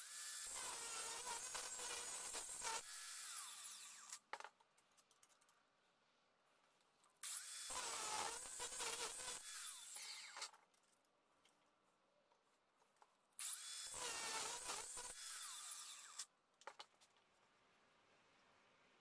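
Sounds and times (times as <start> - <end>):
angle grinder cutting metal: 7.2 - 10.5, 13.4 - 16.3.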